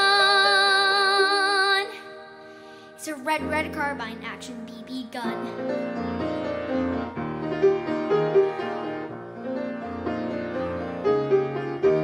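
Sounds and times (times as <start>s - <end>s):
grand piano playing: 0.0s - 12.0s.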